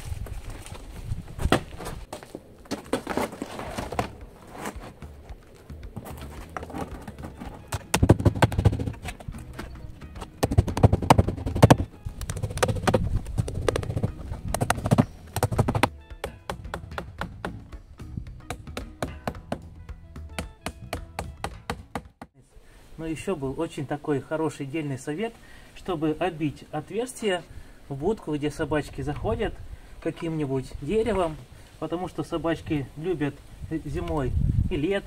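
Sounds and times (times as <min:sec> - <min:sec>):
background music: 0:04.0 - 0:22.3
hammer tapping nails into wood: 0:13.6 - 0:17.7, 0:20.4 - 0:22.3.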